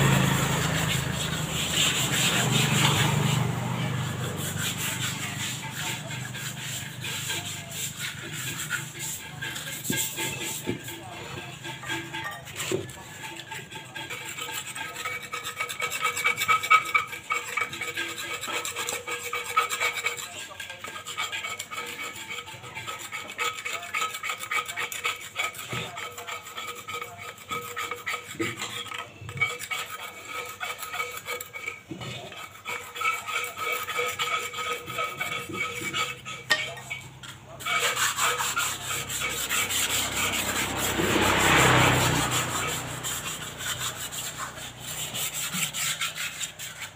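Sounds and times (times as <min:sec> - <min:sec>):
motorbike passing: 0:00.0 - 0:14.0, 0:33.8 - 0:46.9
hand scrubbing cement pots: 0:00.0 - 0:46.9.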